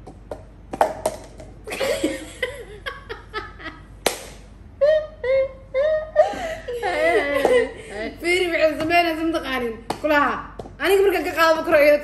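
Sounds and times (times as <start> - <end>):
women laughing: 1.7 - 3.9, 4.8 - 8.2
sharp slaps or knocks: 4.0 - 4.5.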